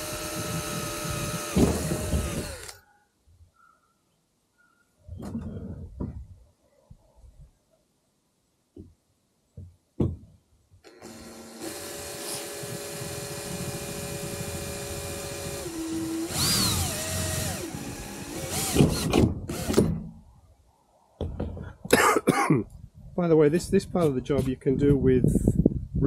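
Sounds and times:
cordless drill boring into metal: 0.0 - 2.8, 10.9 - 19.9
drill clicks: 0.0 - 2.8, 10.8 - 19.9.

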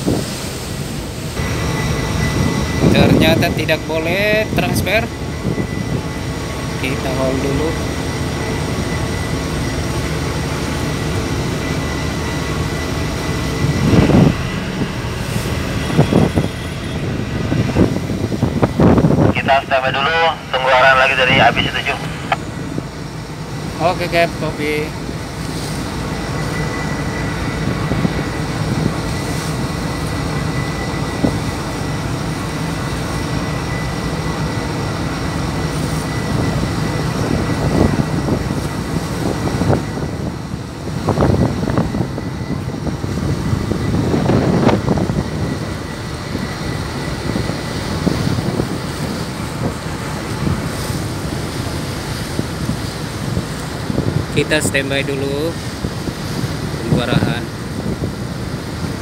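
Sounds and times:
boat engine droning: 0.0 - 59.0
wind rushing: 12.0 - 22.6.

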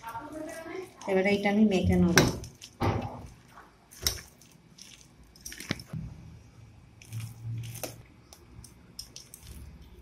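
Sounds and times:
hand kneading wet paste: 0.0 - 6.0, 6.8 - 10.0
wet squelches: 2.4 - 6.0, 6.9 - 10.0.

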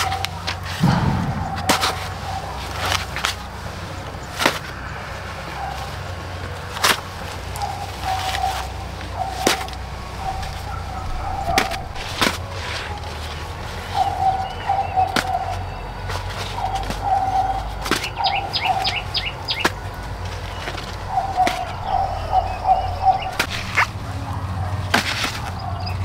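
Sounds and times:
bird calling: 0.0 - 3.2, 4.2 - 26.0
outdoor background: 0.0 - 26.0
sharp knocks: 0.8 - 3.5.

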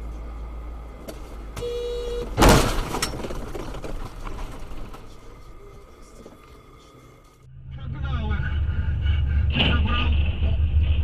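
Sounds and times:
car horn: 1.6 - 2.4
car collision bang: 2.2 - 5.1
low rumble: 7.4 - 11.0.

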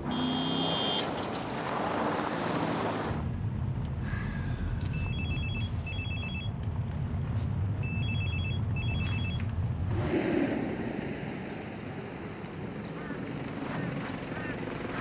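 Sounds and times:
car engine hum: 0.0 - 11.0
phone ringtone beeps: 5.0 - 6.5, 7.8 - 9.4.

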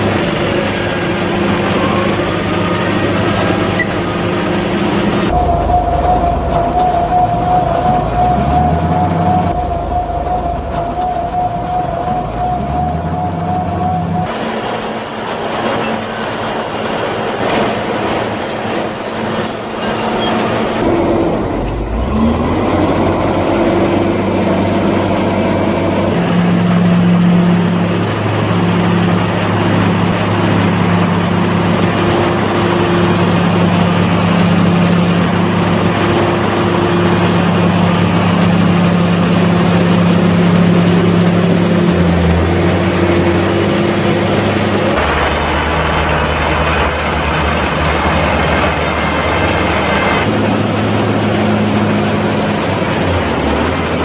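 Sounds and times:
tractor engines revving: 0.0 - 54.0
wavering whine: 0.0 - 54.0
wheel loader diesel engine running: 0.0 - 54.0
unloading gear squealing: 5.4 - 20.9.

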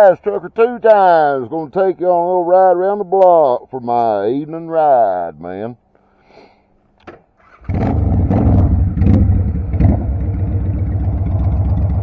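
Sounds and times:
motorcycle engine starting and running: 7.4 - 12.0.

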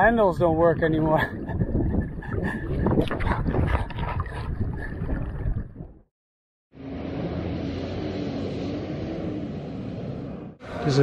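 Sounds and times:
wind buffeting microphone: 0.0 - 6.0.

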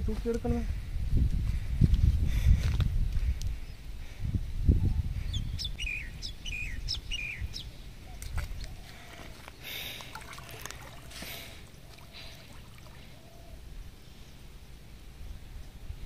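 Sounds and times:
bird chirping: 5.3 - 9.3.

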